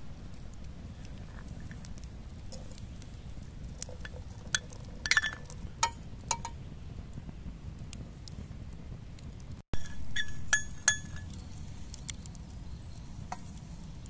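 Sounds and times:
spoon clinking against metal pot: 9.8 - 11.3.

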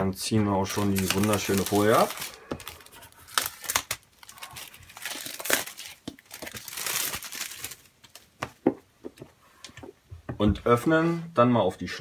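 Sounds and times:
plastic film crinkling: 0.6 - 8.4.

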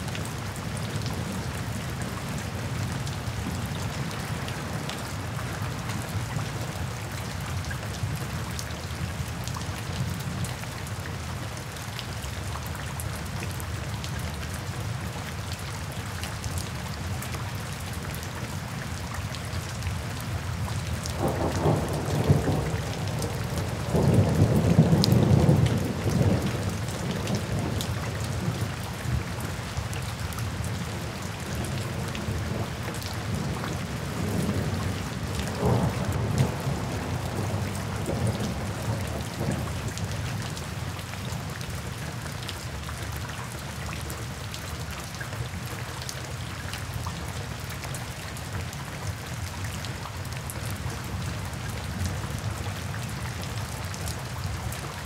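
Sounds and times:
rain on wet pavement: 0.0 - 55.0
low thunder rumbles: 35.5 - 39.7.

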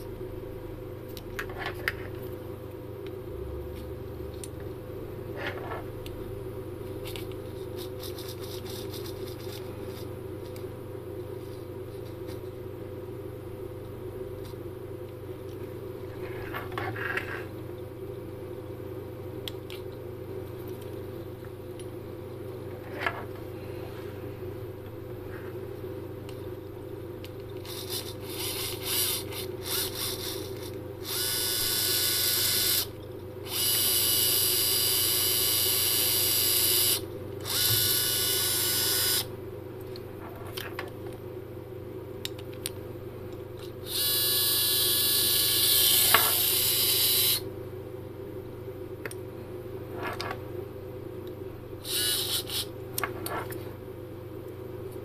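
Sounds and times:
steady low hum: 0.0 - 55.0
servo motor whirring: 27.7 - 32.9, 33.5 - 39.3, 51.8 - 52.7.

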